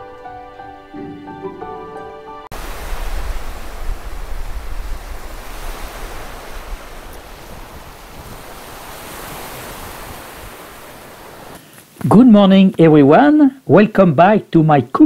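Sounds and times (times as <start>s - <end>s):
small waves washing onto sand: 2.5s - 12.0s
wind noise on microphone: 2.5s - 12.2s.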